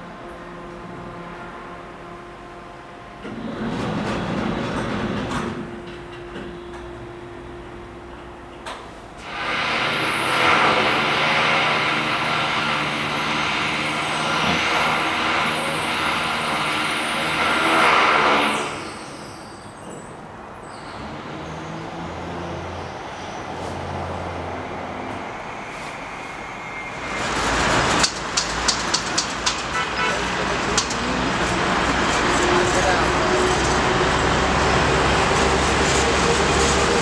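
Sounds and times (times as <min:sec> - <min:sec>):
road traffic: 0:00.0 - 0:37.0
vehicle passing with engine hum: 0:21.0 - 0:29.0, 0:29.7 - 0:37.0.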